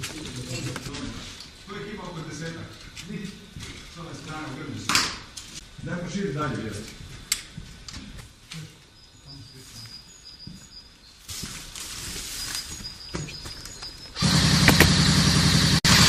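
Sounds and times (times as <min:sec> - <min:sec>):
faint bird chirps: 0:08.5 - 0:14.2.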